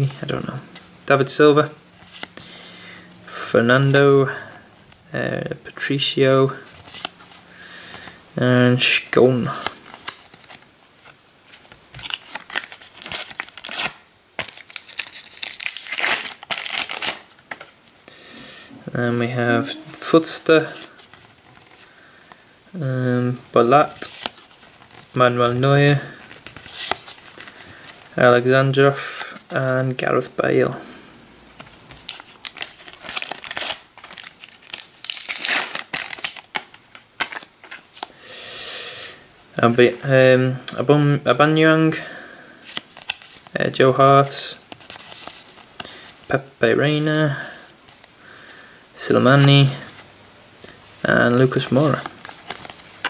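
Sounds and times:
paper wrapper tearing and crinkling: 9.6 - 17.7, 23.7 - 28.2, 31.6 - 38.1, 42.7 - 43.6, 44.6 - 45.9, 51.4 - 53.0.

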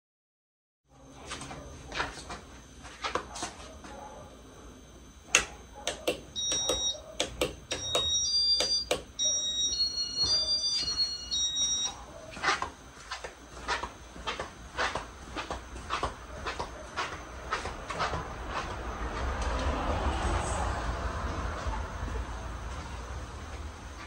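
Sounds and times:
high electronic beeps: 6.4 - 7.0, 7.7 - 12.0.

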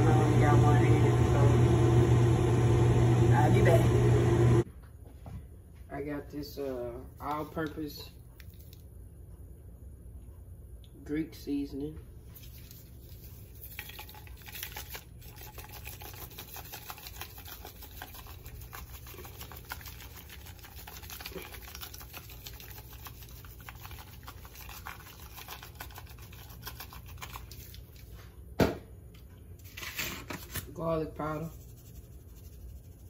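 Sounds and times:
spice shaker rattling: 12.3 - 28.1, 31.4 - 33.0.

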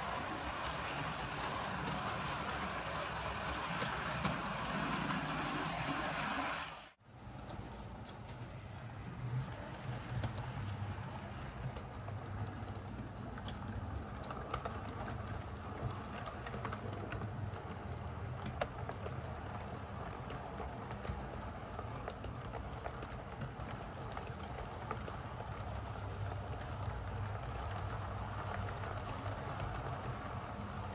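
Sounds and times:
model train wheels ticking: 0.0 - 5.3, 7.4 - 30.9.

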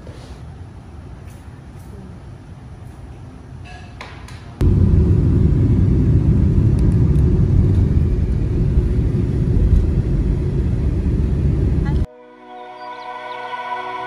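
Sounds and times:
road and wind noise in car: 4.6 - 12.1.

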